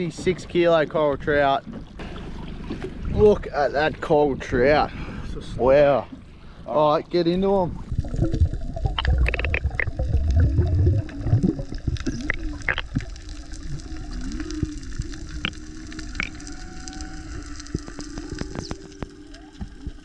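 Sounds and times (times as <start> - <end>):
water churning and bubbling: 0.0 - 20.0
underwater wavering hum: 1.4 - 20.0
underwater sharp clicks: 8.9 - 10.0.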